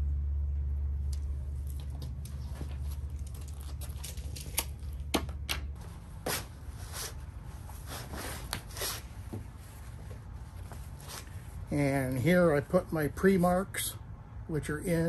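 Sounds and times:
canvas fabric rustling: 5.8s - 11.7s.

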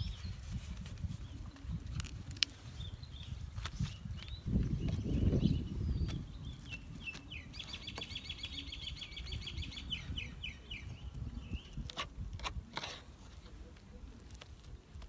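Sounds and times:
bird chirps: 2.6s - 11.9s.

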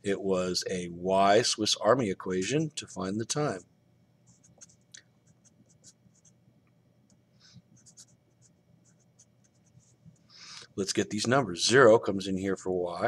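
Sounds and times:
marker scratching on paper: 4.3s - 6.3s, 7.8s - 10.0s.

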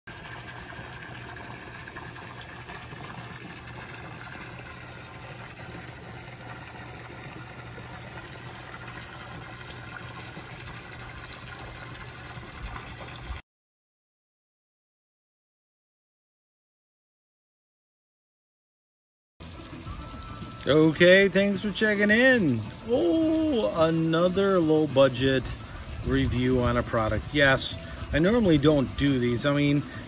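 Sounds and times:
rushing water underwater: 0.1s - 13.4s.

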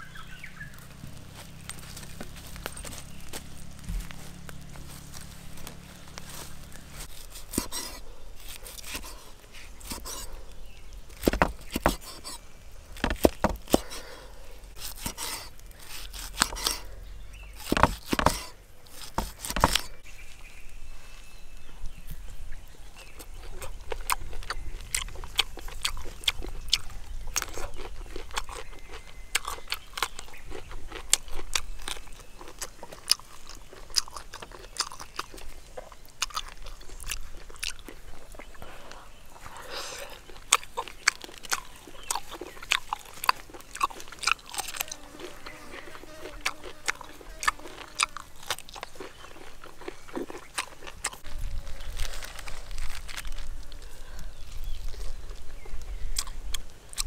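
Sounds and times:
person chewing food: 0.0s - 20.1s, 22.0s - 57.0s.

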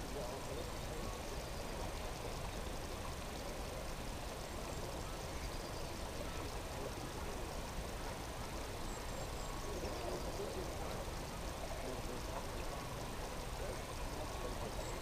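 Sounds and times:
even outdoor hiss: 0.0s - 15.0s.

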